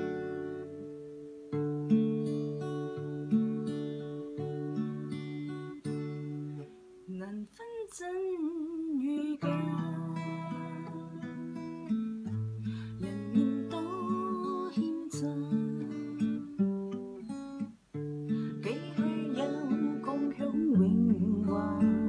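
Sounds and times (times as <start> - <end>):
acoustic guitar chords: 0.0 - 22.0
woman singing: 7.1 - 11.9, 13.0 - 17.0, 18.5 - 22.0.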